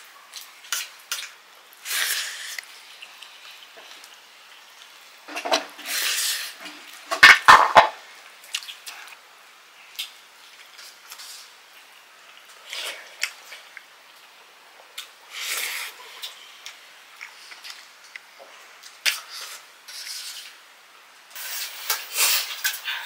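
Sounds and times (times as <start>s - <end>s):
wet eating sounds: 0.3s - 7.0s, 8.4s - 14.4s, 15.0s - 20.6s.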